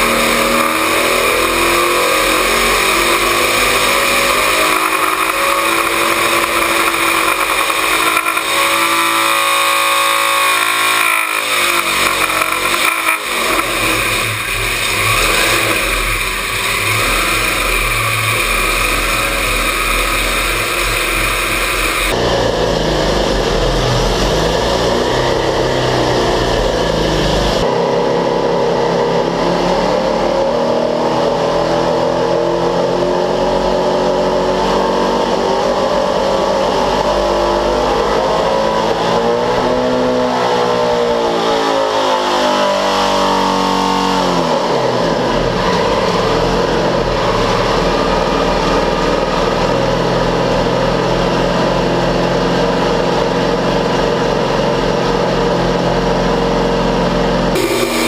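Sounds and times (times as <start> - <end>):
rotary engine running: 0.0 - 22.3, 57.6 - 58.0.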